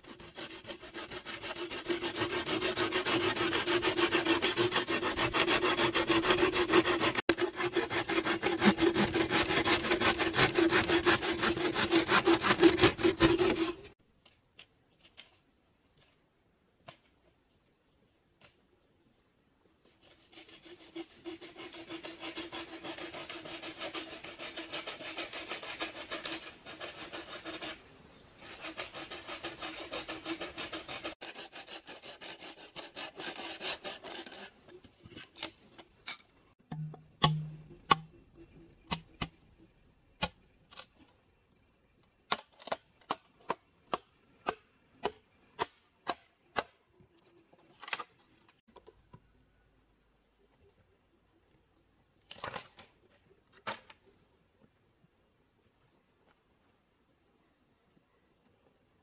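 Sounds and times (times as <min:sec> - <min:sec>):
hand saw cutting wood: 0:00.0 - 0:14.0, 0:20.0 - 0:27.8, 0:28.4 - 0:34.7
sharp wooden knocks: 0:36.7 - 0:38.1.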